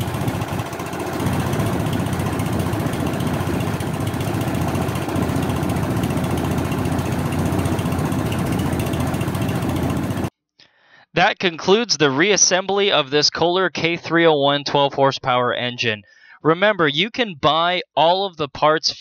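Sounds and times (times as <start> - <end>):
single-cylinder engine running: 0.0 - 10.3.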